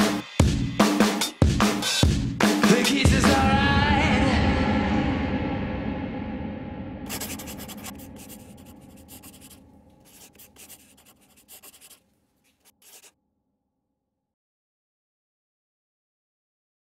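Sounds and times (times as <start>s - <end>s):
music: 0.0s - 7.0s
pen scratching on paper: 7.1s - 13.1s.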